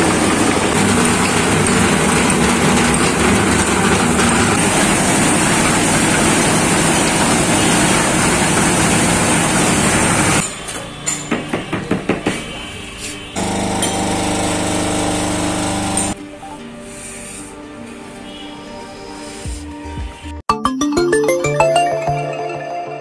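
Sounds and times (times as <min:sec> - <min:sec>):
concrete mixer running: 0:00.0 - 0:10.4, 0:13.4 - 0:16.2.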